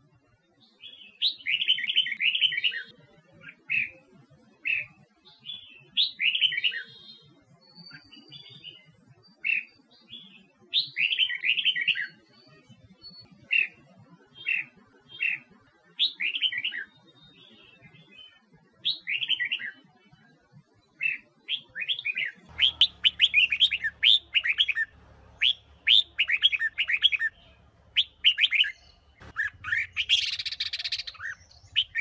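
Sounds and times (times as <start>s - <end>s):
bird warbling song: 21.0s - 32.0s
bird call notes: 22.5s - 32.0s.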